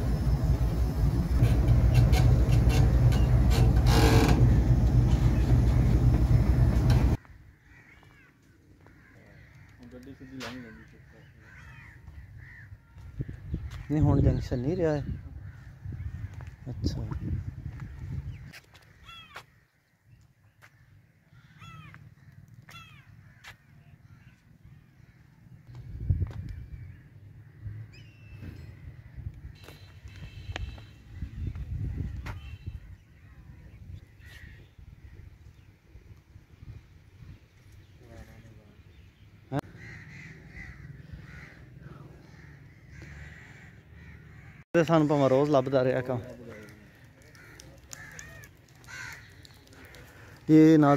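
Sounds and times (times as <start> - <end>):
diesel locomotive engine idling: 0.0 - 7.2
low steady rumble: 0.0 - 7.2
crow cawing: 7.2 - 13.9, 17.7 - 19.9, 20.6 - 25.4, 39.6 - 44.6, 46.1 - 50.9.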